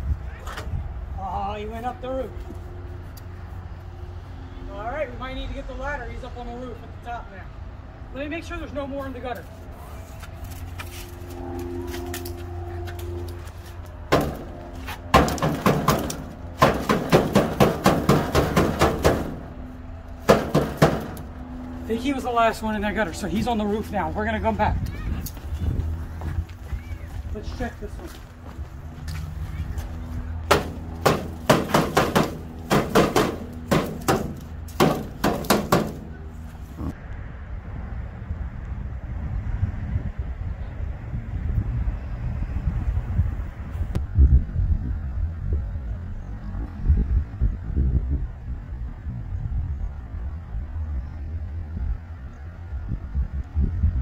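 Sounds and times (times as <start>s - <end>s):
pole knocking on rain gutter: 15.1s - 19.5s, 20.2s - 21.3s, 30.5s - 36.1s.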